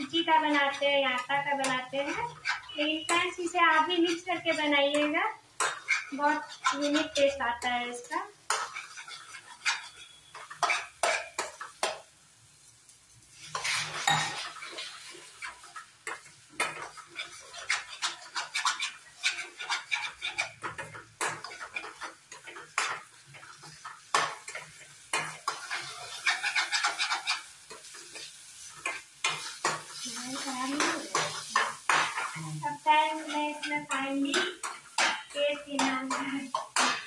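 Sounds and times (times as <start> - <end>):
metal spatula scraping a steel pan: 0.0 - 11.8, 13.3 - 37.0.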